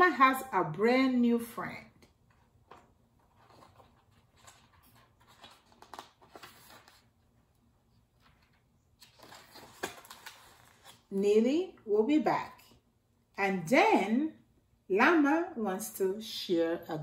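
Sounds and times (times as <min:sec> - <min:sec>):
book pages rustling: 0:02.1 - 0:11.2.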